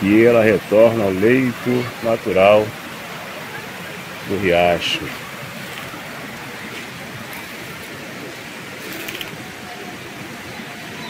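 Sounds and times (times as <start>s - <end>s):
stream rushing over stones: 0.0s - 11.0s.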